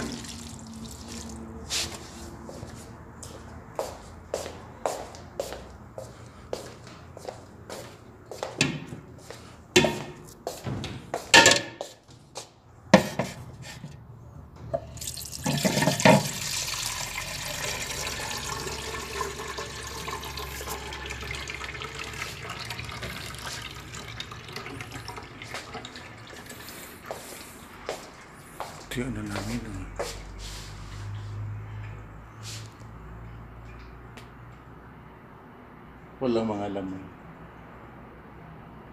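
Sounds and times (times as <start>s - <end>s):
water running: 0.0s - 1.7s, 14.9s - 28.9s
sharp knocks and clatters: 8.6s - 9.0s, 9.8s - 11.9s.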